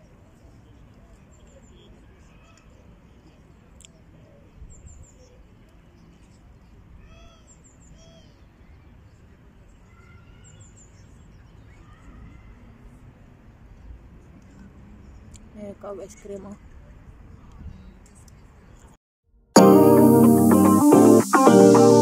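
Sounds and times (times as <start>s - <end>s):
faint distant voices: 0.0s - 19.0s.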